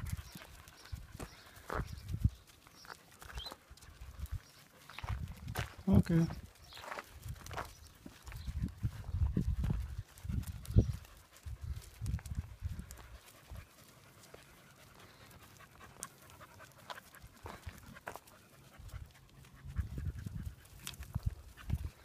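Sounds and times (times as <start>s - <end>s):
dog panting: 8.5s - 22.0s.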